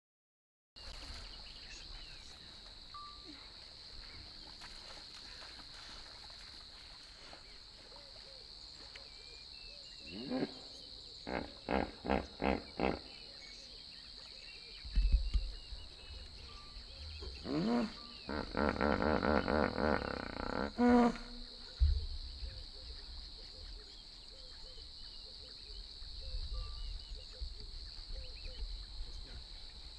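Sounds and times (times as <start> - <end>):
insect drone: 0.8 - 29.9
faint bird chirps: 21.2 - 29.4.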